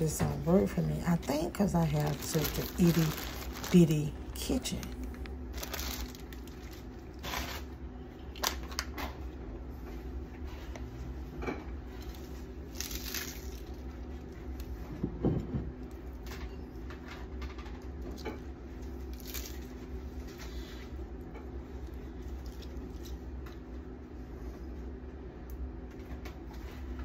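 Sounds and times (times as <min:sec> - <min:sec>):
lettuce leaves rustling and tearing: 0:01.1 - 0:08.8, 0:12.0 - 0:14.7, 0:18.8 - 0:20.4, 0:22.2 - 0:23.6.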